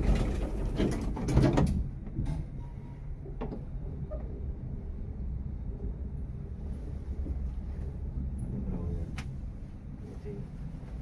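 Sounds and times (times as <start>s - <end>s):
lift clunks and rattles: 0.0s - 4.4s
low hum: 0.0s - 11.0s.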